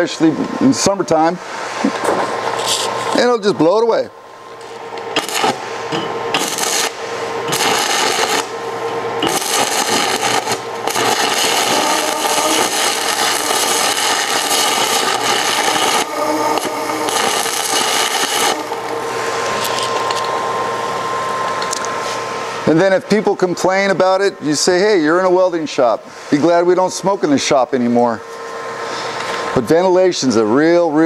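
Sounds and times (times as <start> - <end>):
ventilation hum: 0.0 - 31.0
welding arc crackling: 5.0 - 5.7, 6.3 - 20.2.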